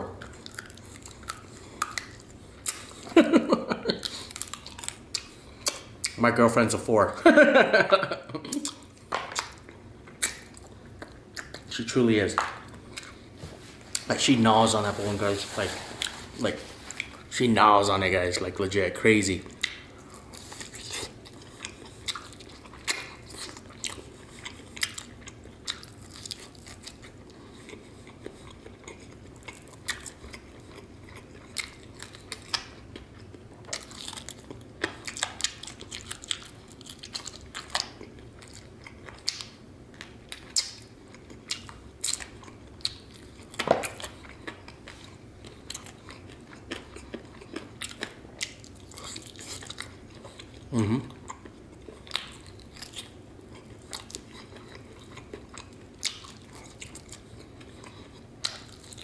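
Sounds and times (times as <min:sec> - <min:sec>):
crunching and chewing chicken: 0:00.0 - 0:06.2, 0:08.5 - 0:59.0.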